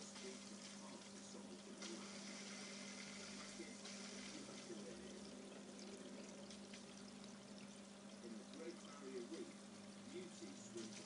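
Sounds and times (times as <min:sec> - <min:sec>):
aquarium filter running water: 0:00.0 - 0:11.0.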